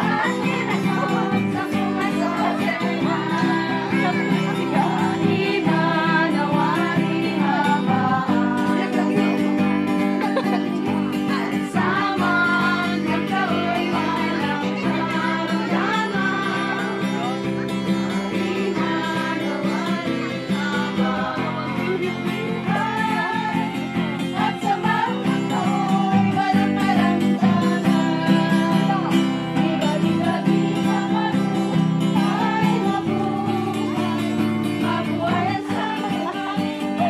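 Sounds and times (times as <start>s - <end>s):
acoustic guitar: 0.0s - 37.0s
women singing together: 0.0s - 37.0s.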